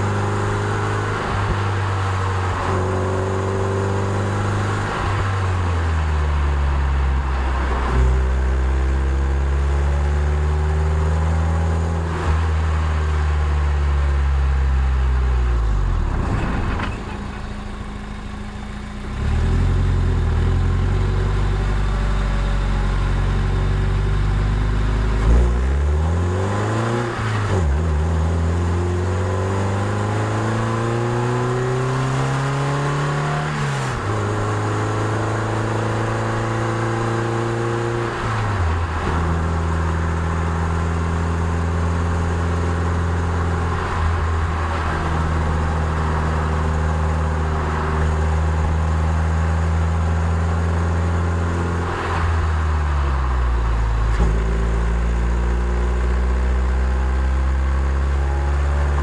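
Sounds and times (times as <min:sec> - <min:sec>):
car engine revving: 0:00.0 - 0:59.0.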